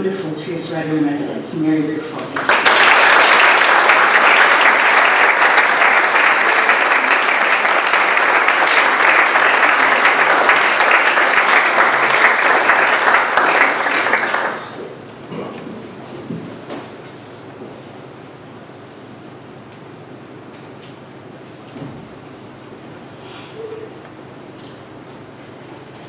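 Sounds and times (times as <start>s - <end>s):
audience applauding: 2.4s - 14.9s.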